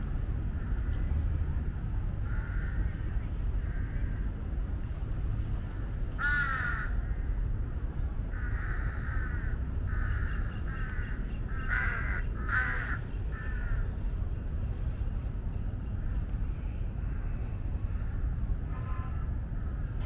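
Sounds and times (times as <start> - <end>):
steady low rumble: 0.0 - 20.0
crows cawing: 2.2 - 4.3, 6.2 - 7.4, 8.3 - 14.0.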